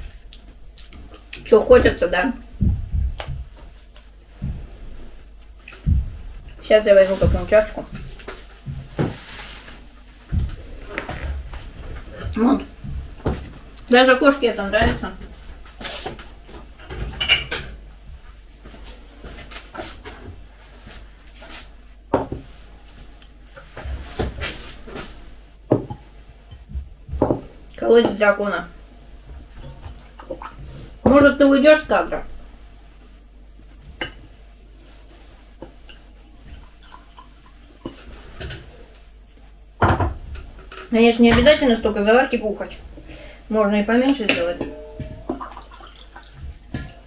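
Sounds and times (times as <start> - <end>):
tea pouring into mug: 45.3 - 46.4.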